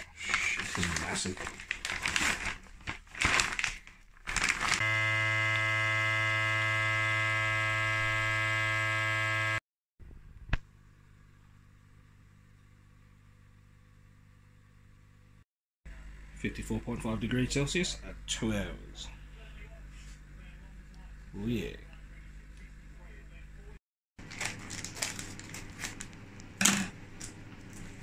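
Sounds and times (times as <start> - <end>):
plastic bag crinkling: 0.2 - 4.8, 24.2 - 26.5
vacuum sealer pump humming: 4.3 - 9.6.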